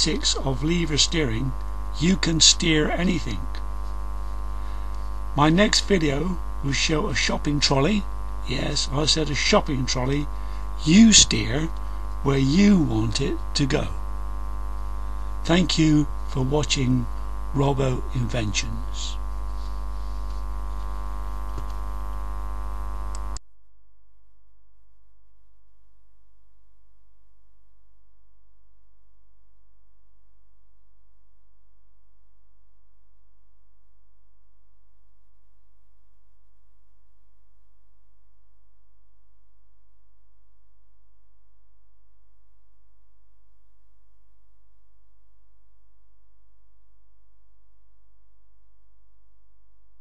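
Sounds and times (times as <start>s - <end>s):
electrical mains hum: 0.0s - 23.4s.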